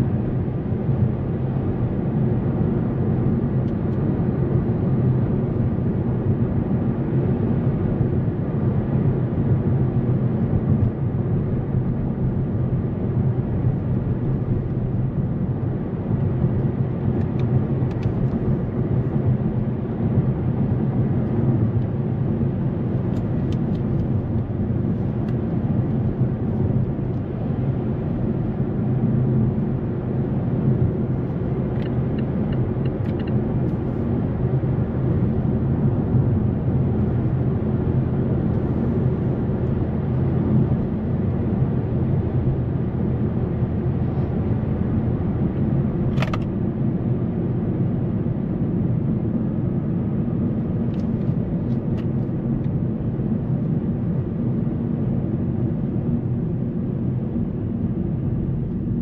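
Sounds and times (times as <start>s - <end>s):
sharp click: 46.1s - 46.5s.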